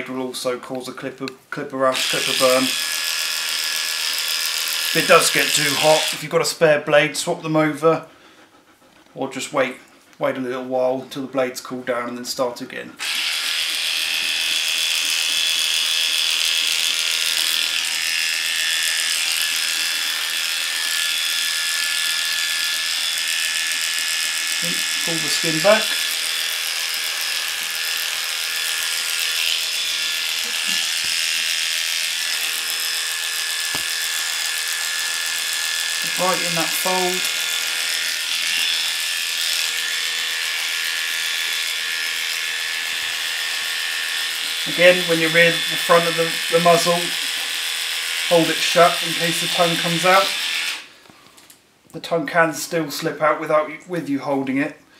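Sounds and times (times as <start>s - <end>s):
electric clippers shaving hair: 2.0s - 6.2s, 13.0s - 50.9s.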